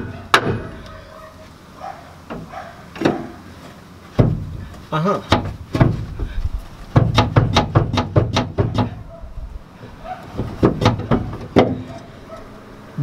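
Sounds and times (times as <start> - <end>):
sharp metal knocks on steel: 7.0 - 9.0.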